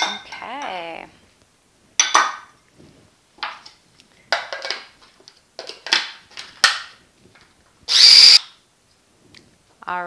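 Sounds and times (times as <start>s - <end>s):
food processor motor whirring: 7.9s - 8.4s.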